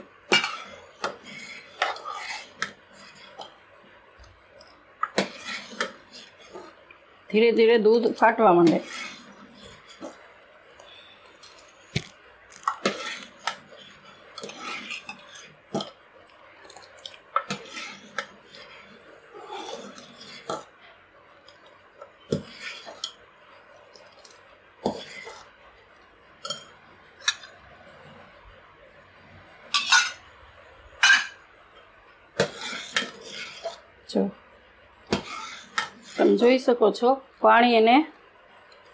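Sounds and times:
ladle scraping and clinking in pot: 0.3 - 3.6, 5.0 - 6.8, 8.3 - 10.2, 11.5 - 15.9, 17.4 - 20.8, 22.2 - 23.2, 29.7 - 30.3, 31.0 - 31.4, 32.4 - 33.9, 35.1 - 36.4.

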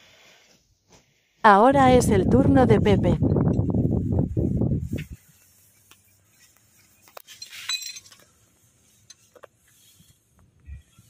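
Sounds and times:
metal climbing hardware clinking: 7.0 - 8.3
metallic jingle: 7.3 - 8.2.

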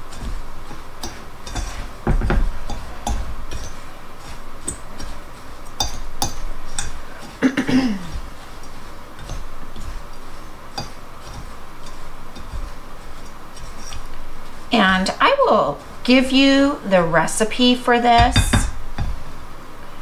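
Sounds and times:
fork scraping glass bowl: 0.0 - 7.4, 8.0 - 16.1.

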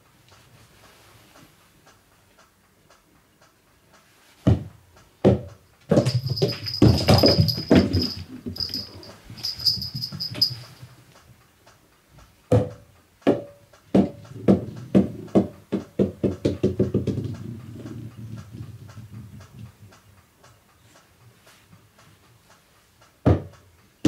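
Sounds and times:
rubber ball bouncing on wooden floor: 4.5 - 9.1, 12.5 - 19.1, 23.2 - 23.5.

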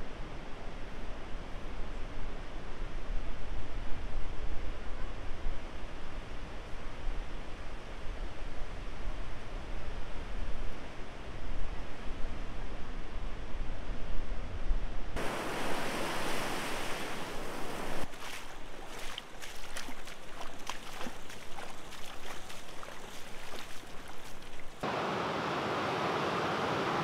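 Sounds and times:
ocean surf: 15.2 - 19.1, 24.8 - 27.0
water splashing around wading legs: 15.2 - 24.8.

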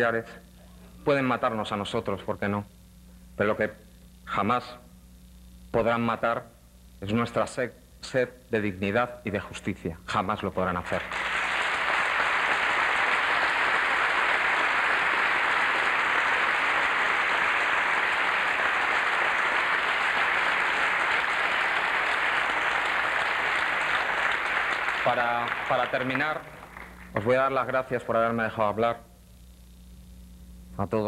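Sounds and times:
audience applauding: 10.9 - 27.2.

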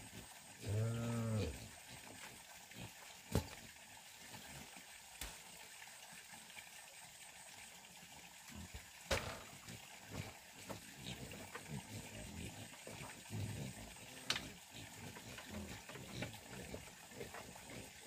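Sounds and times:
cow mooing: 0.6 - 1.6.

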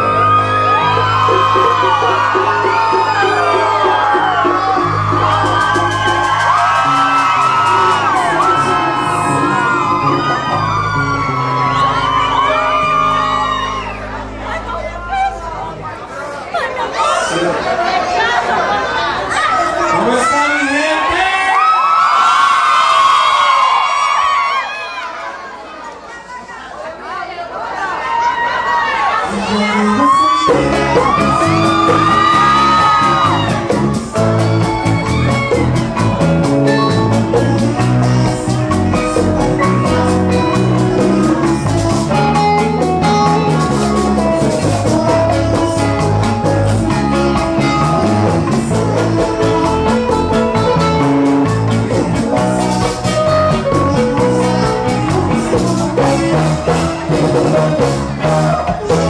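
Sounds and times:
man singing lead: 0.0 - 10.9, 29.3 - 35.6, 36.4 - 59.0
guitar backing: 0.0 - 21.2, 29.2 - 59.0.

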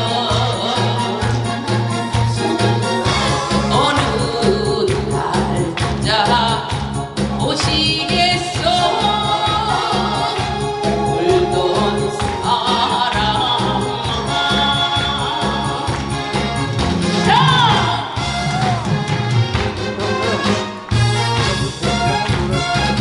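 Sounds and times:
woman singing into a microphone: 0.0 - 18.3
musical accompaniment with steady beat: 0.0 - 23.0.

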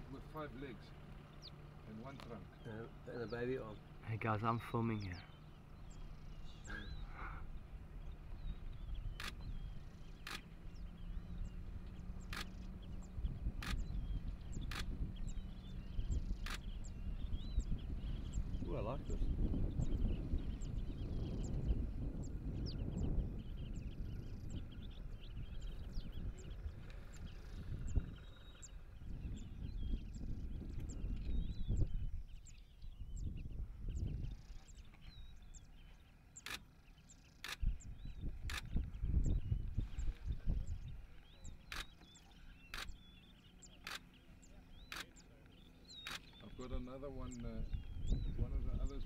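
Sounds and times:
low uneven rumble: 0.0 - 49.0
small birds chirping: 0.0 - 49.0
camera shutter clicking: 36.4 - 36.6, 43.8 - 44.0.

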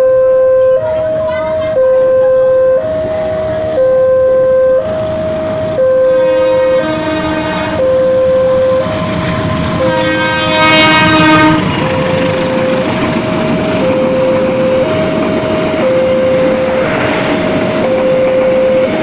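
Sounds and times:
train passing: 0.0 - 19.0
two-pitch warning tone: 0.0 - 19.0
train horn: 6.0 - 12.9.

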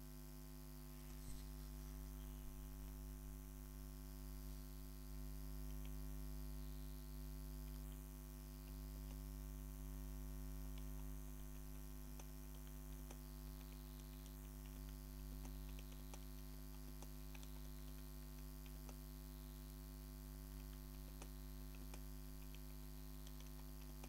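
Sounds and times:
low electrical hum: 0.0 - 24.0
computer mouse clicks: 5.6 - 6.0, 7.6 - 9.4, 10.6 - 19.8, 20.4 - 24.0.

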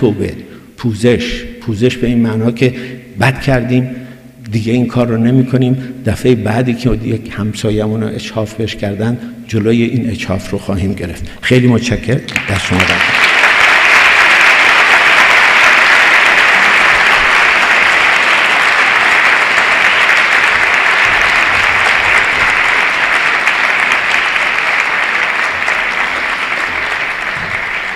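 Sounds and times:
large audience applauding: 12.4 - 27.9.

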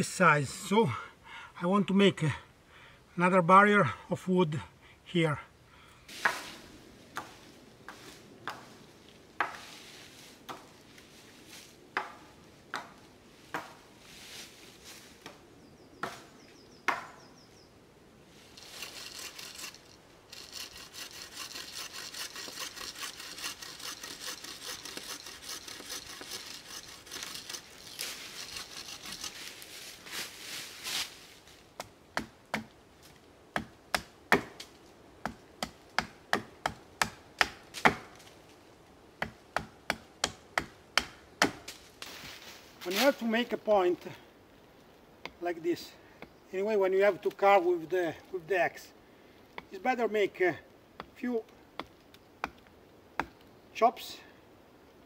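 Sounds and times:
saw rasping through wood: 18.8 - 29.5.

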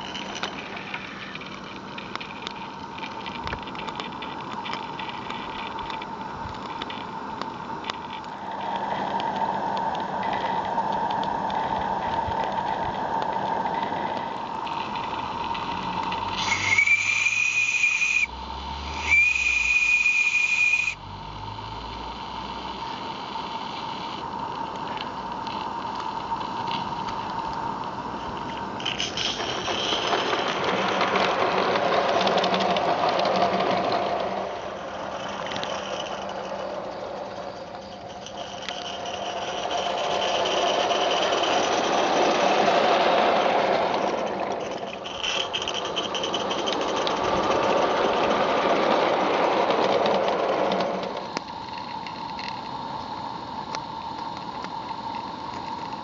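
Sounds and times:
model steam train running on track: 0.0 - 21.1, 22.1 - 56.0
steam hissing: 13.7 - 21.0
steam whistle: 16.4 - 21.0.

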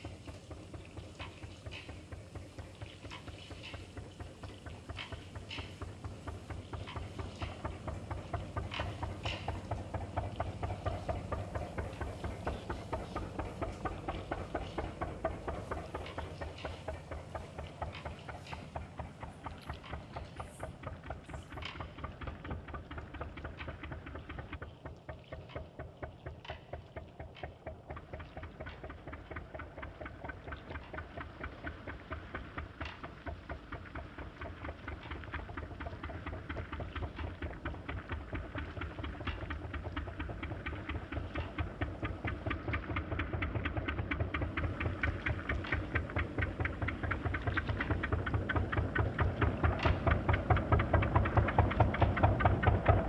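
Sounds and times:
machine-like pulsing music: 0.0 - 53.0.

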